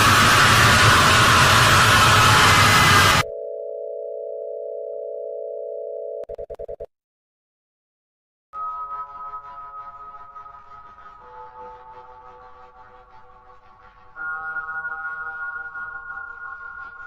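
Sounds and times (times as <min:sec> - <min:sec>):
loud static hiss: 0:00.0 - 0:03.2
synth tone: 0:00.0 - 0:06.9
telephone dial tone: 0:03.2 - 0:06.9.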